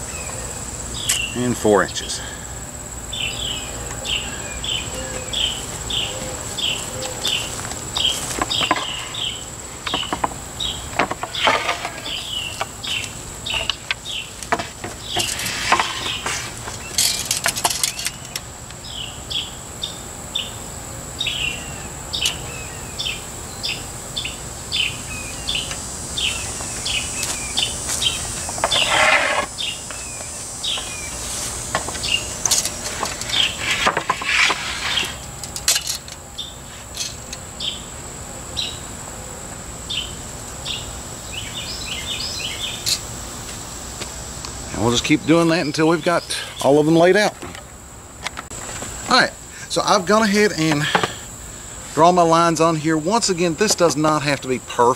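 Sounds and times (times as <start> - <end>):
outdoor chirping: 0.0 - 54.9
steady high whine: 0.0 - 54.9
boards scraping and knocking: 8.0 - 9.2, 11.0 - 18.2, 28.0 - 30.0, 30.7 - 35.3.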